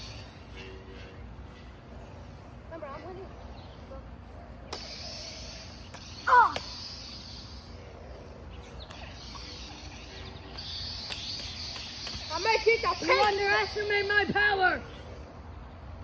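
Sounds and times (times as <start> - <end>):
lightsaber blades clacking: 4.7 - 7.8, 8.6 - 14.4
steady hiss: 4.7 - 15.7.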